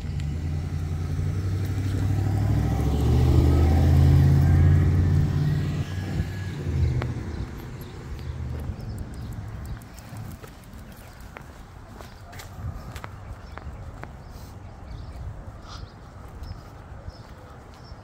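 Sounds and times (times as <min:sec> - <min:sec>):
car driving past: 0:00.0 - 0:08.7.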